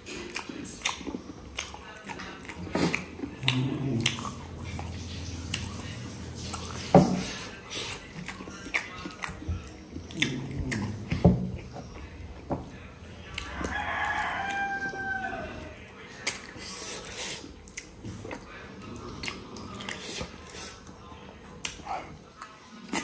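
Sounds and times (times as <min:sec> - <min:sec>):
chewing and lip-smacking: 0:00.0 - 0:12.2, 0:12.8 - 0:15.0, 0:15.6 - 0:23.0
rooster crowing: 0:13.4 - 0:15.8.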